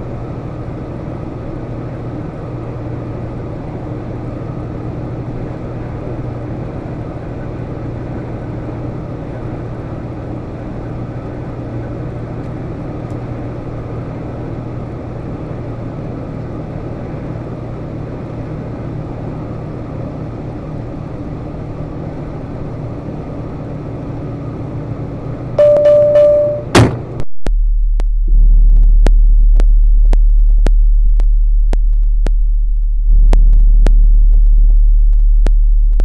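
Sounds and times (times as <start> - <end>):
tyre and road noise: 0.0 - 27.2
diesel engine low hum: 0.0 - 36.0.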